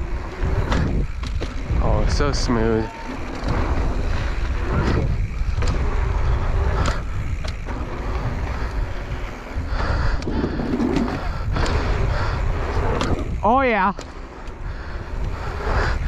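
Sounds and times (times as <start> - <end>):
tyres rolling on dirt: 0.0 - 16.0
wind buffeting microphone: 0.0 - 16.0
bike knocks: 0.5 - 2.1.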